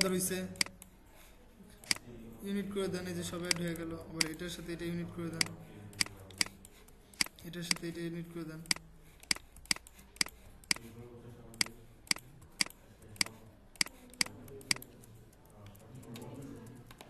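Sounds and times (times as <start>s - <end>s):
computer mouse clicking: 0.0s - 1.0s, 1.8s - 2.0s, 3.4s - 4.5s, 5.4s - 7.9s, 8.6s - 10.9s, 11.5s - 17.0s.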